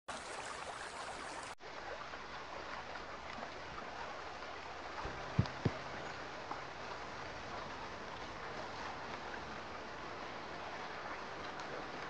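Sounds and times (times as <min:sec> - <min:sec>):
water trickling: 0:00.1 - 0:12.0
low thumps: 0:05.0 - 0:06.7.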